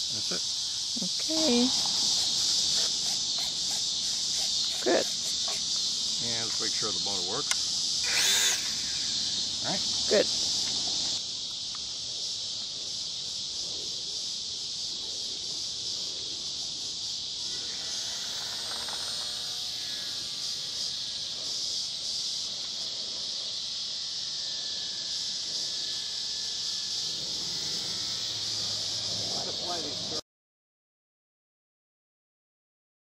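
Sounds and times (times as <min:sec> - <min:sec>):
high-pitched insect chorus buzzing: 0:00.0 - 0:30.2
faint multi-tone whine: 0:17.5 - 0:22.0.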